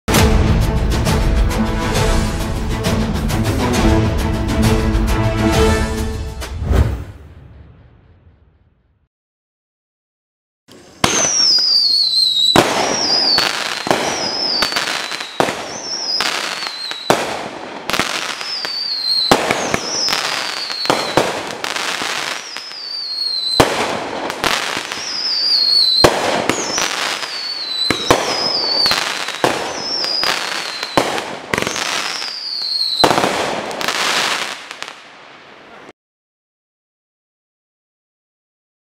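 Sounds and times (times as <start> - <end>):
crackling firework breaks: 10.7 - 35.0
firework whistles dropping in pitch: 10.8 - 17.2, 18.0 - 23.7, 24.4 - 34.5.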